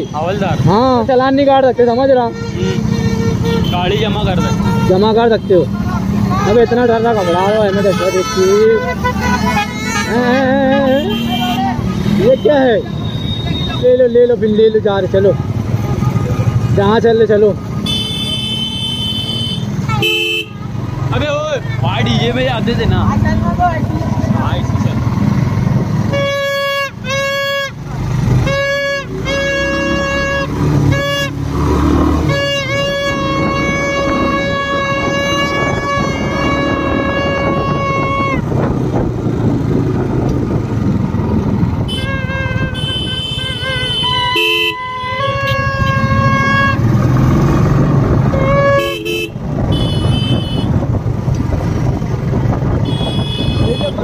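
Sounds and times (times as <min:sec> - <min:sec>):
motorcycle rumble and wind noise: 0:00.0 - 0:54.0
buzzy horn blasts: 0:02.3 - 0:05.7, 0:06.4 - 0:13.9, 0:17.6 - 0:20.7, 0:26.1 - 0:27.8, 0:28.4 - 0:38.5, 0:41.8 - 0:47.2, 0:48.2 - 0:50.8, 0:52.8 - 0:54.0.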